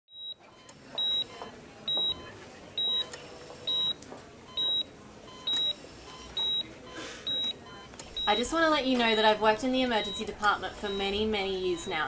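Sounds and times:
heart monitor beeping: 0:00.1 - 0:12.0.

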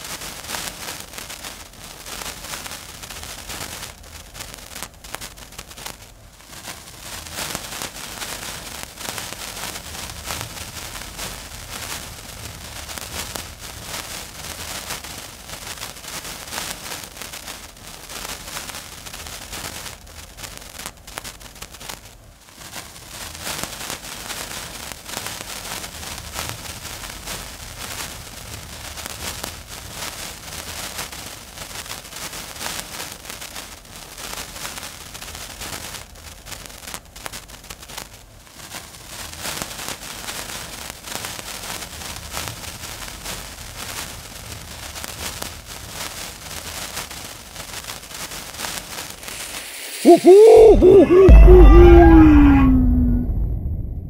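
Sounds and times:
lit fuse fizzing: 0:48.6 - 0:50.1.

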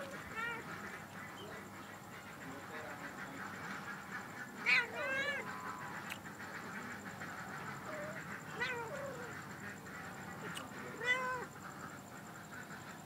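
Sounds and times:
cat yowling: 0:00.0 - 0:00.7, 0:04.6 - 0:05.5, 0:07.8 - 0:09.4, 0:10.6 - 0:11.5.

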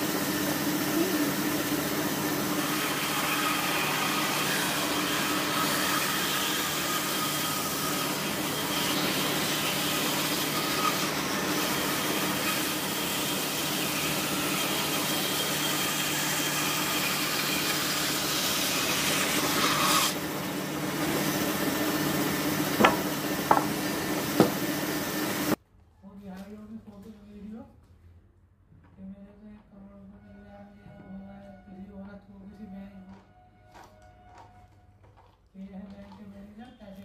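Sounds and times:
band saw cutting wood: 0:00.0 - 0:25.6
sharp knocks: 0:22.8 - 0:24.6.

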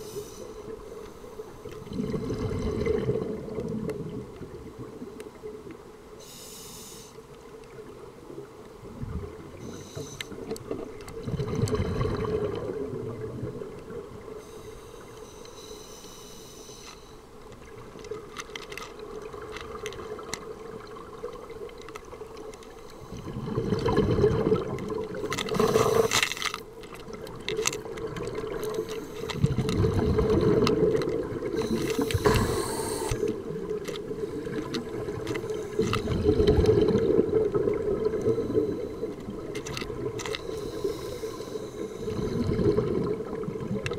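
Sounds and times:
regulator inhalation hiss: 0:00.0 - 0:01.6, 0:06.2 - 0:07.2, 0:09.6 - 0:10.4, 0:14.4 - 0:17.2, 0:25.5 - 0:26.2, 0:31.6 - 0:33.4, 0:40.4 - 0:42.4
exhaled bubbles rumbling: 0:01.8 - 0:05.1, 0:08.8 - 0:09.7, 0:10.4 - 0:14.4, 0:23.1 - 0:26.2, 0:27.0 - 0:40.3, 0:42.0 - 0:43.9.

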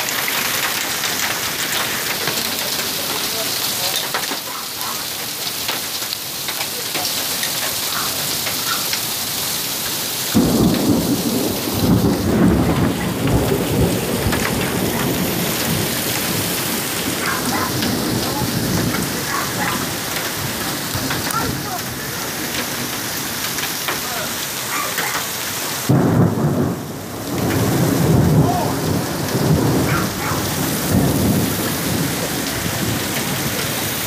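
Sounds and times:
hailstones ticking: 0:00.0 - 0:34.0
heavy rain and hail: 0:00.0 - 0:34.0
thunder rumbling: 0:10.2 - 0:34.0.

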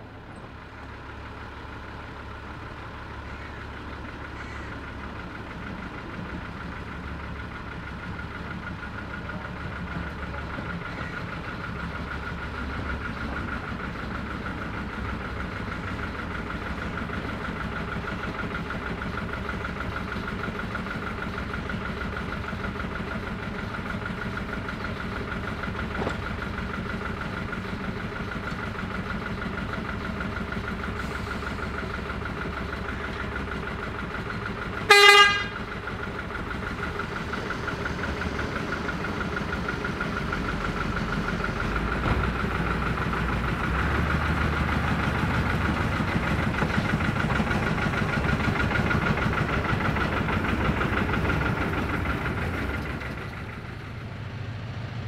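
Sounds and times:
diesel locomotive engines idling: 0:00.0 - 0:55.0
low engine rumble: 0:00.0 - 0:55.0
locomotive horn toot: 0:34.8 - 0:35.7.

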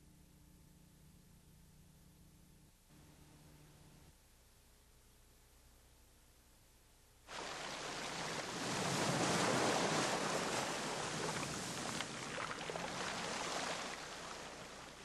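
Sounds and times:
surf breaking on rocks: 0:07.3 - 0:14.6.

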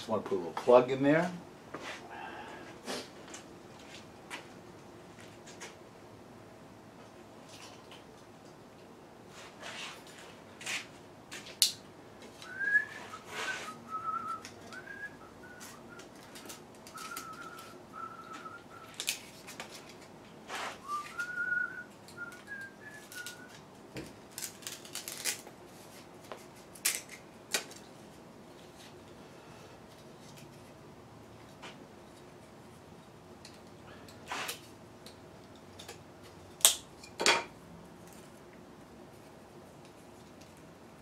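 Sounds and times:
person whistling a tune: 0:12.4 - 0:16.1, 0:16.9 - 0:19.0, 0:20.8 - 0:23.6.

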